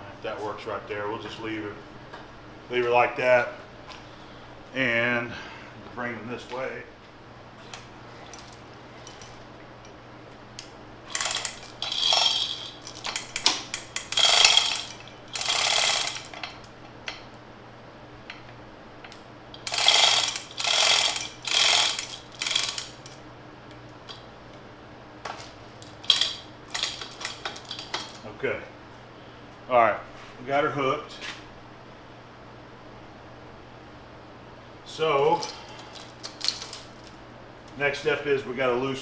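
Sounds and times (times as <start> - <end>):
hoist chain rattling and clinking: 11.1 - 16.7, 19.6 - 23.2, 26.0 - 28.2.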